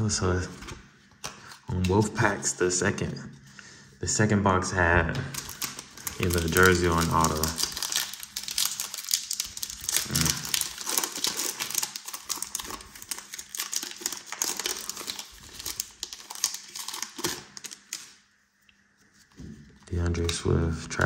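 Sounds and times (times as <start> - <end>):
plastic wrapper crinkling: 5.1 - 20.6.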